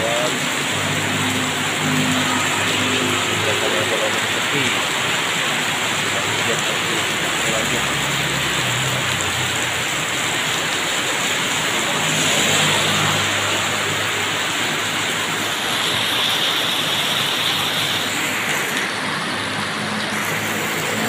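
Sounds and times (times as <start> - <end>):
heavy rain pouring: 0.0 - 21.0
motorbike engine passing: 10.3 - 15.4.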